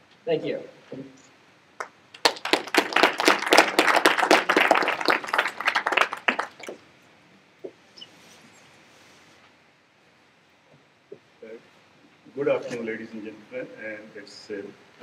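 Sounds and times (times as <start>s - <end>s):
audience applauding: 1.8s - 6.8s.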